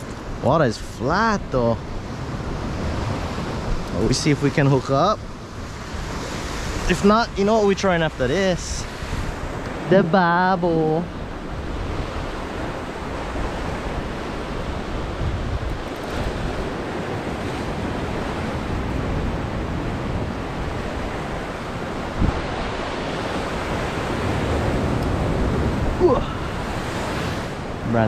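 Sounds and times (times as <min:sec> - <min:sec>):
ocean waves breaking on rocks: 0:00.0 - 0:28.0
wind on microphone: 0:10.8 - 0:27.9.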